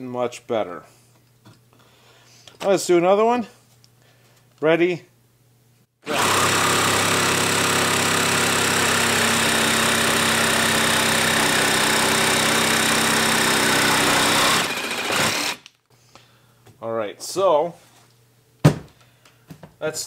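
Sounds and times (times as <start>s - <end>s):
jigsaw sawing wooden board: 6.0s - 15.6s.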